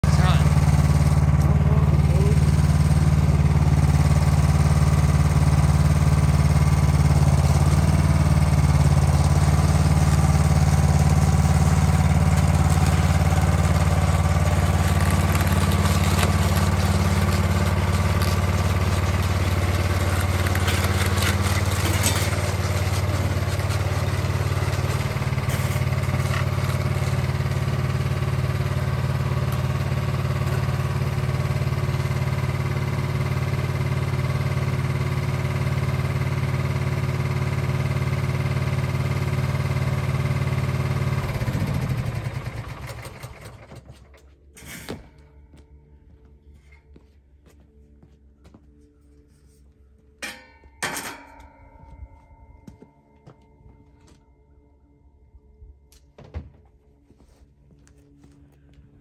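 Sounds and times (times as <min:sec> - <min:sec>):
snowblower engine running: 0:00.0 - 0:46.8
tracks clanking on metal ramps: 0:14.7 - 0:27.2, 0:50.2 - 0:52.1.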